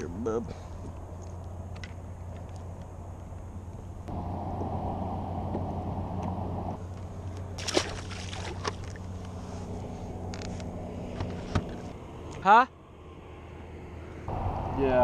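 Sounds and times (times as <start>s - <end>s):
low rumble: 3.9s - 7.3s
fish splashing into water: 7.6s - 9.1s.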